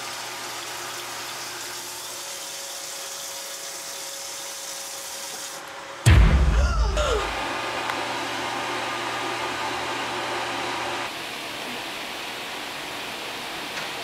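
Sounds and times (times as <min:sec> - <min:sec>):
deep boom: 0:06.1 - 0:07.4
falling cry: 0:06.4 - 0:07.4.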